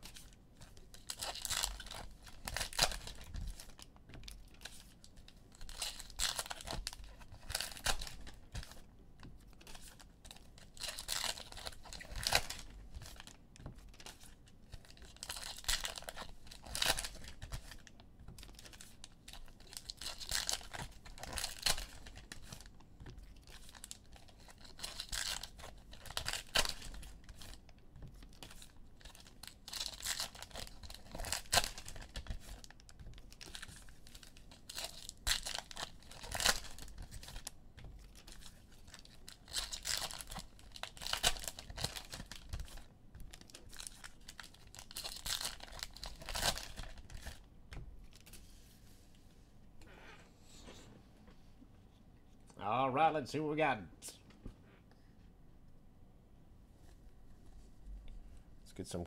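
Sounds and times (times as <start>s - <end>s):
foil wrappers tearing and crinkling: 0.0s - 3.8s, 5.5s - 8.8s, 9.6s - 22.7s, 23.4s - 47.4s.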